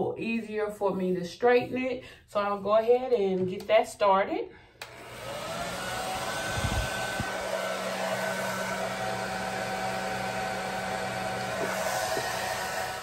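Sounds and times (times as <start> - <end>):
hair dryer running: 4.8 - 13.0.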